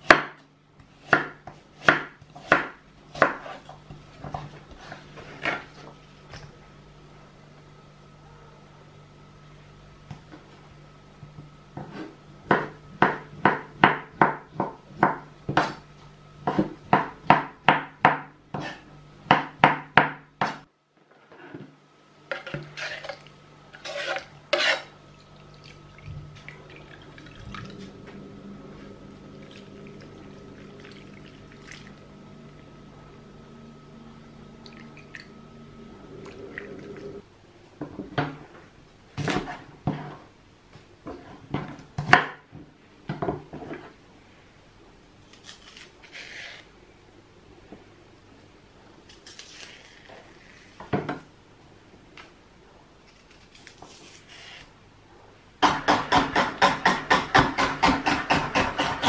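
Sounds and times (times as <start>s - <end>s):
knife chopping on wooden board: 1.0s - 3.8s, 11.8s - 15.8s, 16.5s - 20.6s, 55.6s - 59.0s.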